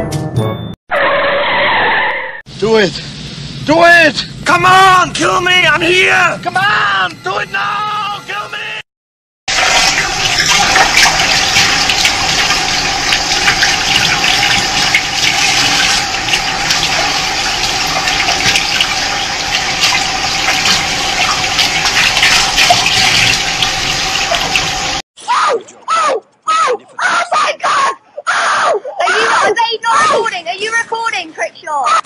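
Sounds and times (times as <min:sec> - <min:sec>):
water running from sink tap: 0:09.5 - 0:25.0.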